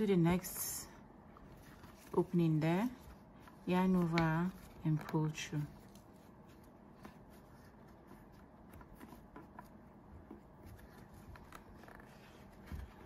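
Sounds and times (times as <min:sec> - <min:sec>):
faint yarn rustling: 0:00.0 - 0:13.0.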